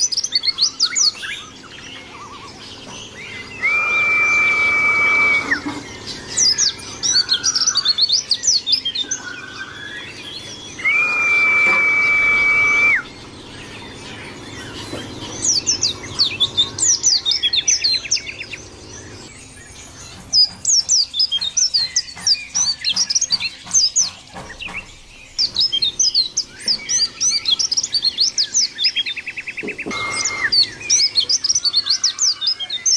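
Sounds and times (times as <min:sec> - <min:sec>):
bird twittering chirps: 0:00.0 - 0:32.9
short buzzy bird trill: 0:02.0 - 0:21.2, 0:26.2 - 0:32.4
long whistled bird note: 0:03.3 - 0:06.4, 0:09.2 - 0:13.2, 0:29.8 - 0:31.6.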